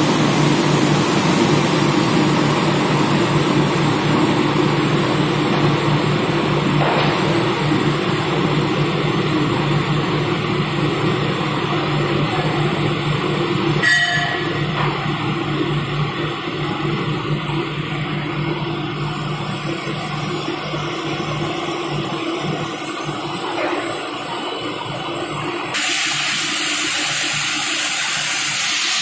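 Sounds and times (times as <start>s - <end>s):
industrial machine humming: 0.0s - 29.0s.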